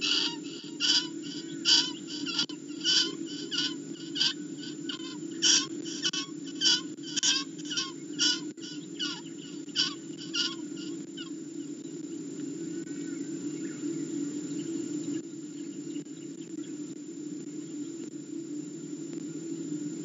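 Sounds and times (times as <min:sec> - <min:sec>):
bird screaming in distress: 0:00.0 - 0:11.4
faint bird chirps: 0:00.0 - 0:18.1
steady low hum: 0:00.0 - 0:20.0.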